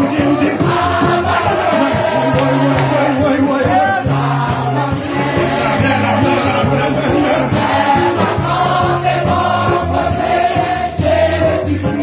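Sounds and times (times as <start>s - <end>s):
congregation singing: 0.0s - 12.0s
instrumental accompaniment: 0.0s - 12.0s.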